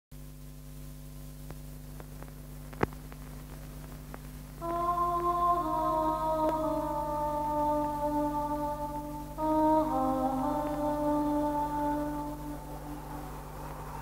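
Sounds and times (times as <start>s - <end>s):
steady low hum: 0.1s - 14.0s
film score with long held notes: 4.5s - 14.0s.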